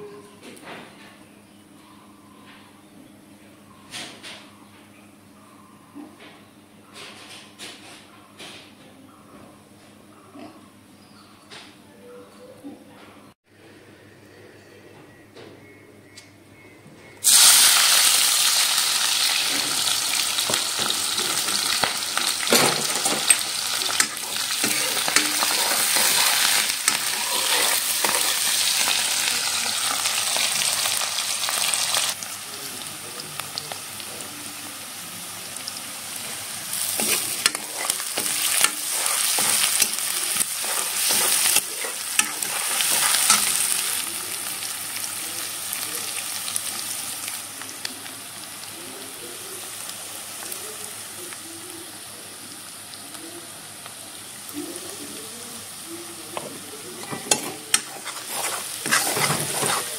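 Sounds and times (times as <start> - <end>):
onions sizzling in hot oil: 17.2 - 59.9
spoon stirring clicks and scrapes: 22.5 - 29.0, 37.0 - 43.6, 56.4 - 59.9.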